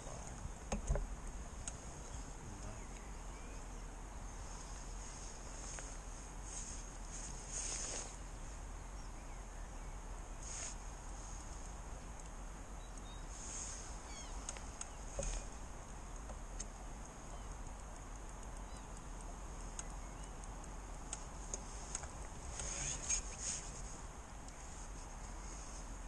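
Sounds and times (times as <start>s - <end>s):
steady outdoor hiss: 0.0s - 26.0s
bird chirps: 2.0s - 4.3s, 12.8s - 15.5s, 17.2s - 17.6s, 18.6s - 19.0s, 19.8s - 20.4s
light clicks: 16.1s - 23.2s.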